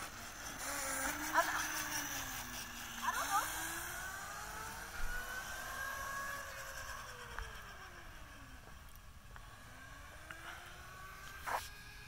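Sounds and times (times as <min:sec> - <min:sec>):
electric scooter motor whine: 0:00.0 - 0:12.0.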